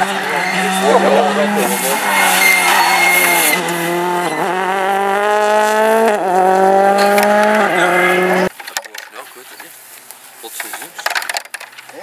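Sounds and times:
car engine at full throttle: 0:00.0 - 0:08.5
quick gear upshifts: 0:00.0 - 0:08.5.

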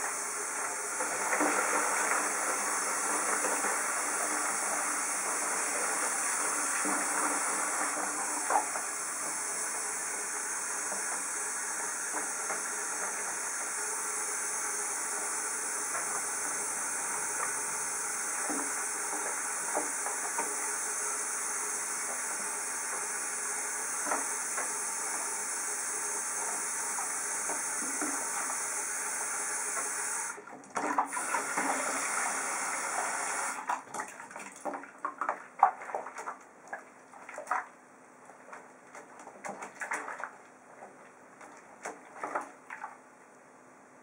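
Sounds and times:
faucet running into tub of water: 0:00.0 - 0:37.7
water splashing and sloshing: 0:15.0 - 0:21.2, 0:30.4 - 0:32.2, 0:33.5 - 0:43.3.

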